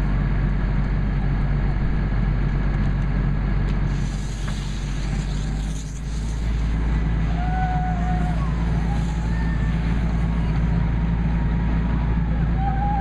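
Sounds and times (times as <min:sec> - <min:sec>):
fire engine running: 0:00.0 - 0:13.0
hiss of water on fire: 0:03.8 - 0:10.8.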